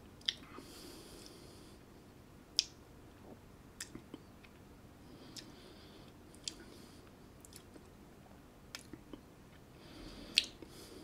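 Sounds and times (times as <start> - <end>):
lip smacks and tongue clicks: 0.2 - 0.5, 2.5 - 2.8, 3.8 - 4.6, 6.3 - 6.7, 7.4 - 7.9, 8.7 - 9.2, 10.3 - 10.7.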